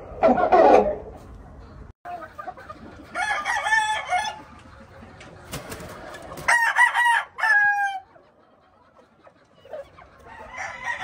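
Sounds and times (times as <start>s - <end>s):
rooster crowing: 3.2s - 4.4s, 6.5s - 8.0s, 10.3s - 11.0s.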